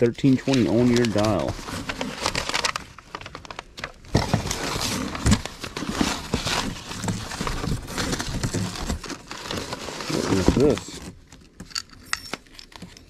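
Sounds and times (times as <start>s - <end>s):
papers rustling in a box: 0.2s - 13.0s.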